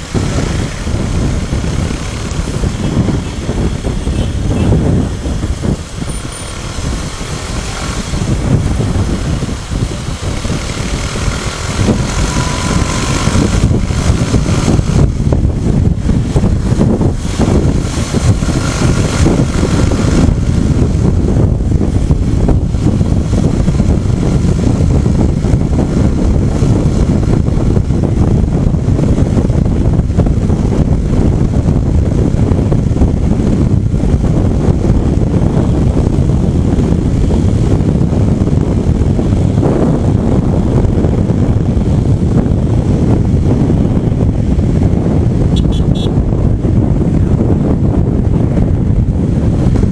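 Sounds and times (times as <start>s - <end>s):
motorcycle engine running: 0.0s - 49.9s
wind rushing over microphone: 0.0s - 49.9s.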